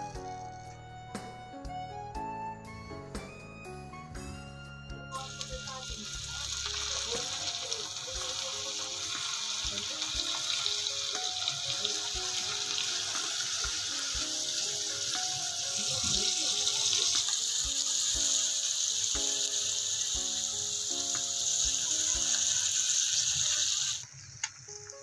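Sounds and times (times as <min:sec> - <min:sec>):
light background music: 0:00.0 - 0:23.8
fish sizzling in hot oil: 0:05.1 - 0:25.0.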